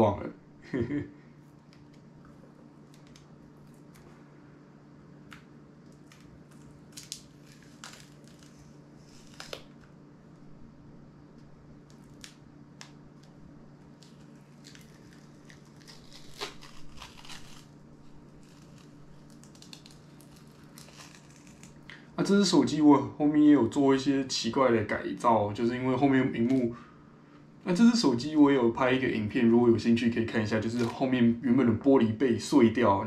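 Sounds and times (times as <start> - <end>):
low hum: 0.0 - 33.0
clicks scrapes and crinkles: 5.3 - 9.9, 11.9 - 21.8.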